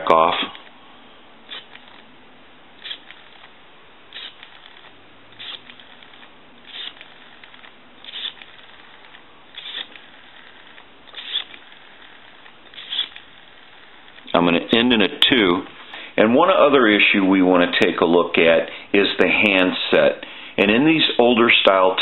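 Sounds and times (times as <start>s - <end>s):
rotary telephone dial clicking: 1.5s - 2.1s, 2.8s - 14.3s.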